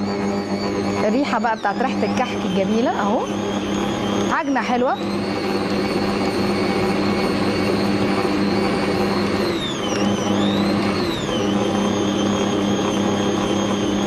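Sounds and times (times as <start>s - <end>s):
electric stand mixer running: 0.0s - 14.0s.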